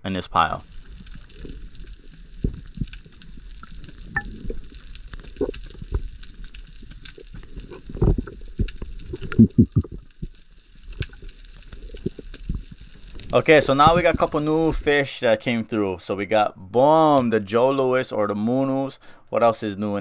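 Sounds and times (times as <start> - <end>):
underwater crackling: 0.4 - 15.0
water thuds and gurgles: 0.6 - 14.8.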